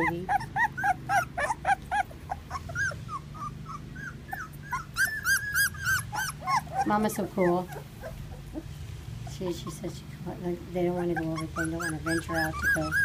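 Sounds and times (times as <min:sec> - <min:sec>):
puppies whining: 0:00.0 - 0:13.0.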